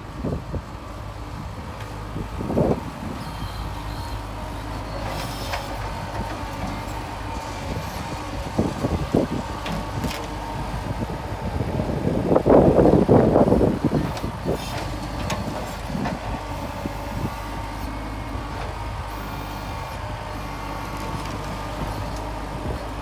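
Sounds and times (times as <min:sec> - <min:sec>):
tractor engine hum: 0:00.0 - 0:23.0.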